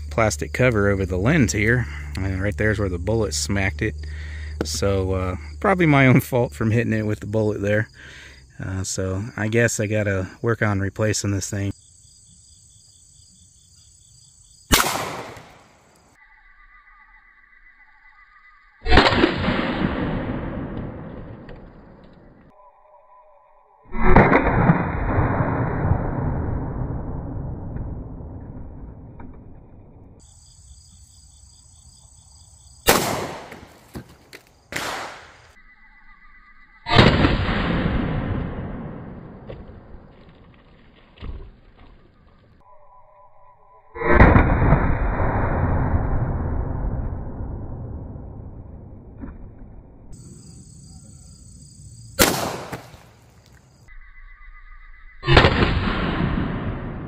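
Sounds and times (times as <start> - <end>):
insects buzzing: 0.0 - 18.9, 30.2 - 37.0, 50.2 - 55.3
gunshot echo: 14.7 - 15.7, 18.9 - 22.0, 23.9 - 26.8, 32.8 - 33.9, 34.7 - 35.5, 36.9 - 40.1, 44.0 - 46.9, 52.2 - 53.2, 55.2 - 57.0
pistol shots: 14.7 - 15.7, 32.8 - 33.8, 34.7 - 35.4, 52.2 - 53.2.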